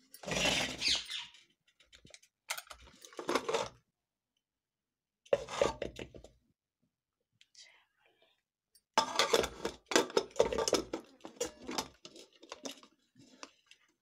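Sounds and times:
metal spoon scraping steel pot: 0.0s - 1.1s, 3.1s - 3.7s, 5.4s - 5.9s, 9.0s - 13.7s.

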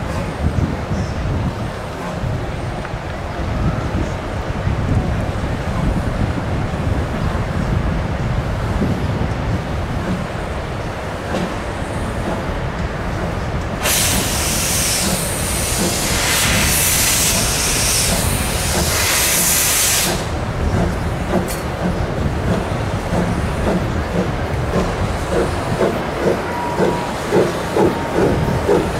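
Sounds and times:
steam locomotive rumbling: 0.0s - 28.9s
loud hiss of steam: 13.2s - 28.9s.

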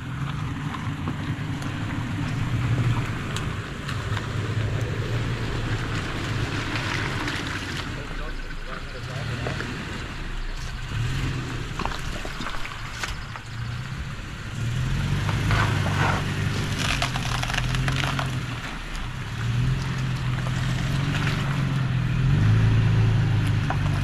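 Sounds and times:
vehicle engine running low: 0.0s - 24.0s
twigs and stones crunching: 10.5s - 14.0s, 15.0s - 22.4s.

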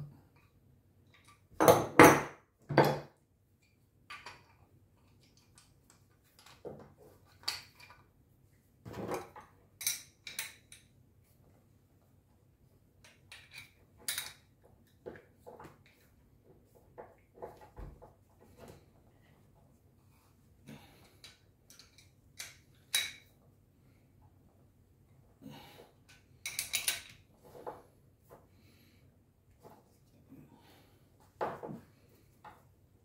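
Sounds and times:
metal tools clinking on wood: 26.4s - 27.2s.

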